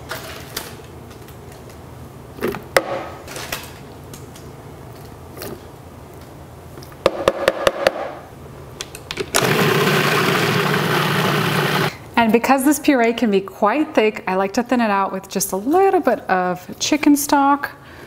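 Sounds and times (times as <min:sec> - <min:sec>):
food processor motor running: 0:09.4 - 0:12.0.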